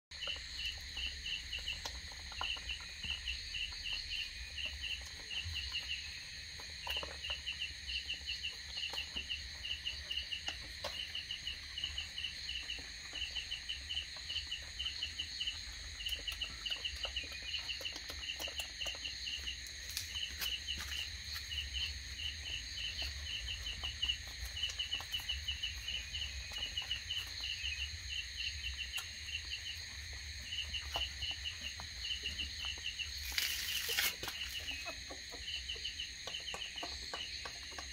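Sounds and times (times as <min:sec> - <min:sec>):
crickets chirping: 0:00.1 - 0:37.9
high insect whine: 0:19.0 - 0:37.3.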